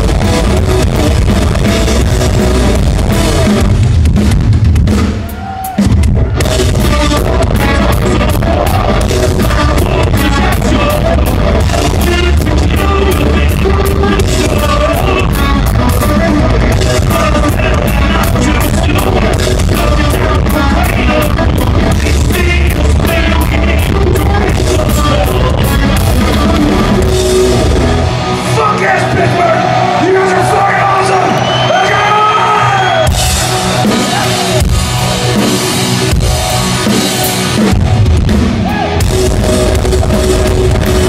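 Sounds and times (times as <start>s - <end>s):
pounding drums: 0.0s - 31.6s, 33.0s - 41.0s
distorted electric guitars: 0.0s - 41.0s
live heavy rock band: 0.0s - 41.0s
crowd yelling and whooping: 5.0s - 6.7s, 26.6s - 41.0s
person singing: 6.7s - 27.2s.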